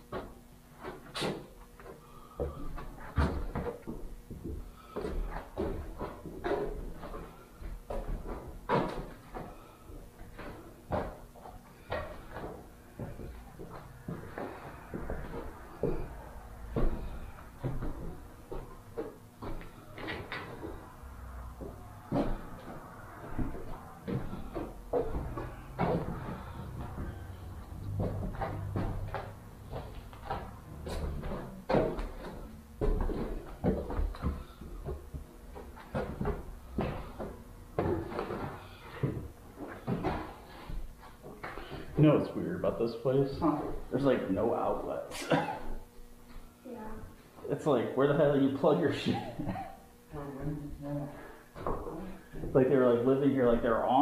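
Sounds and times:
footsteps on wooden floorboards: 0.0s - 41.8s
knocks bumps and scuffs: 0.0s - 42.1s
low handling rumble: 20.7s - 31.7s.

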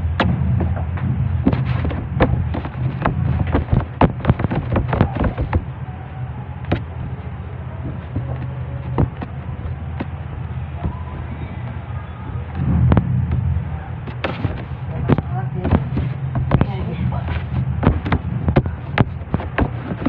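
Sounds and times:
steady low hum: 0.0s - 20.0s
hands slapping dough on metal: 1.5s - 5.7s.

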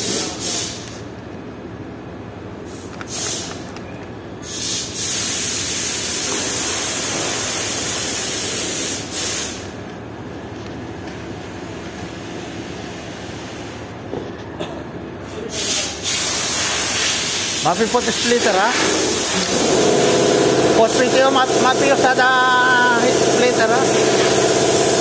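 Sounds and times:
hissing bursts: 0.0s - 1.0s, 4.4s - 9.8s, 15.5s - 25.0s.

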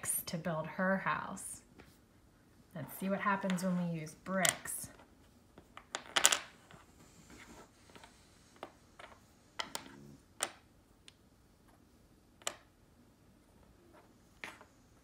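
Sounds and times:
wooden blocks clicking on a table: 5.8s - 6.5s, 12.4s - 12.7s.

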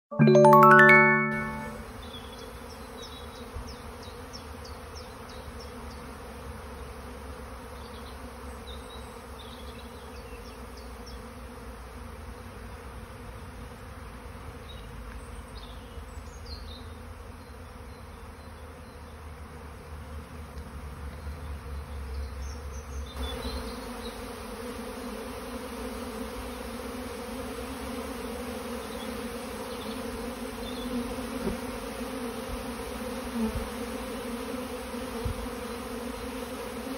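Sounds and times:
swarm of bees buzzing: 1.7s - 14.8s, 23.2s - 36.9s.

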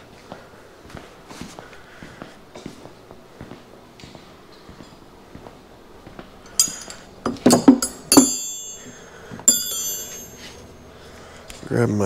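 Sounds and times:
steel tools clinking: 6.4s - 10.8s.

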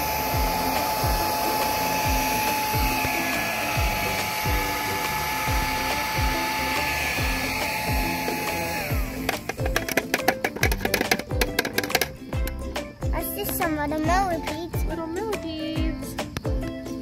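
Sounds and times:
bug vacuum whining: 0.0s - 13.1s
background music with beat: 0.0s - 17.0s.

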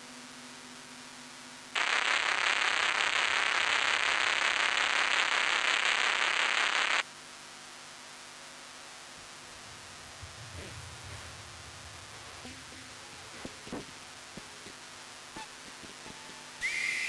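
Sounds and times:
loud static hiss: 0.0s - 17.0s
faint low hum: 7.4s - 16.7s.

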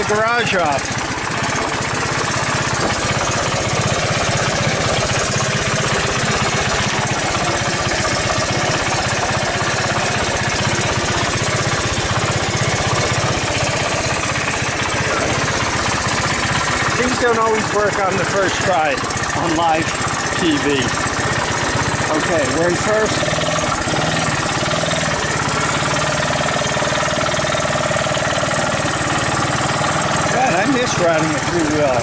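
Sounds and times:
engine idling: 0.0s - 32.0s.

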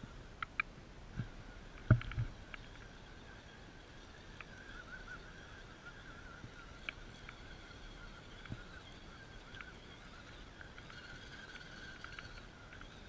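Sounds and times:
electric motor and gears whining: 1.2s - 13.0s.

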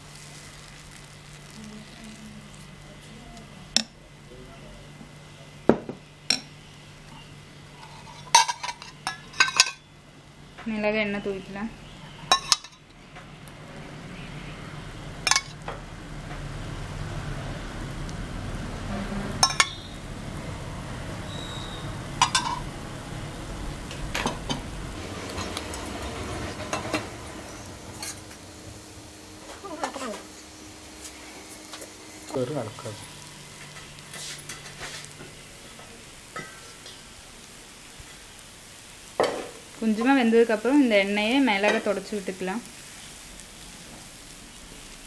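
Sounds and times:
faint sizzle on griddle: 0.0s - 45.0s
metal utensils clinking: 7.8s - 9.8s, 12.3s - 12.9s, 19.4s - 19.8s, 22.2s - 22.7s, 24.2s - 28.4s
steady low hum: 17.8s - 39.1s.

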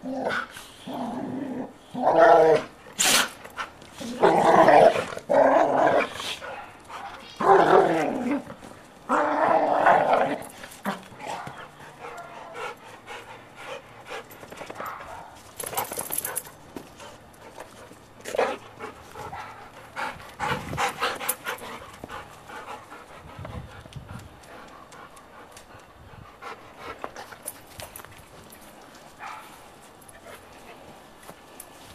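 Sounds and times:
dogs growling: 0.0s - 14.4s.

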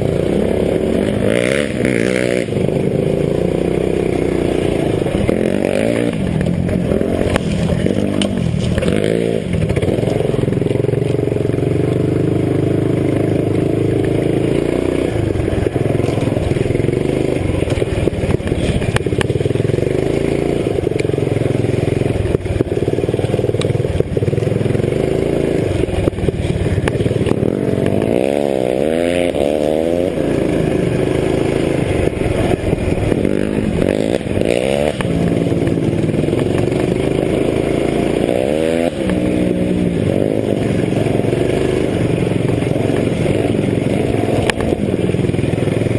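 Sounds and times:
motorcycle engine revving: 0.0s - 45.9s.

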